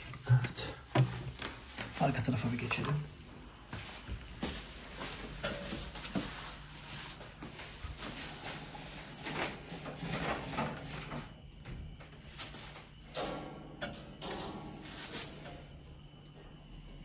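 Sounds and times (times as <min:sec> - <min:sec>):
cable rustling and scraping: 0:01.0 - 0:11.2.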